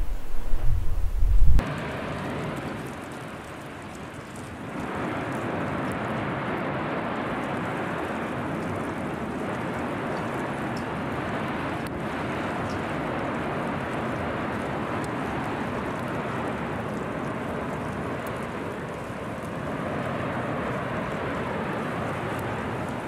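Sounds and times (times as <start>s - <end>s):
volcanic eruption roar: 0.0s - 23.0s.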